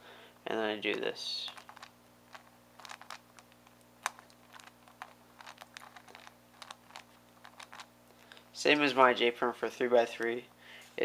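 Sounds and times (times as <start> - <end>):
plastic puzzle clicking: 1.5 - 7.9.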